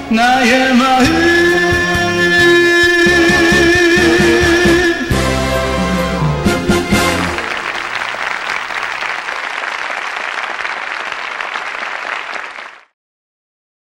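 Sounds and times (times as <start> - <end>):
song note: 2.4 - 7.8
applause and clapping: 6.6 - 13.0.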